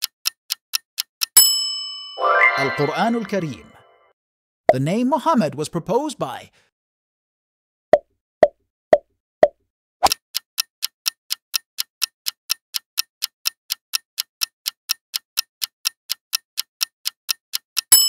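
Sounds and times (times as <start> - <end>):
ticking clock: 0.0 - 1.8, 10.0 - 18.0.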